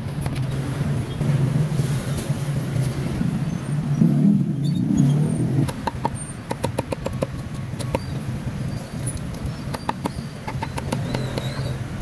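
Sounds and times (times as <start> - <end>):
passing traffic rumble: 0.0 - 12.0
sharp knocks: 5.6 - 8.0.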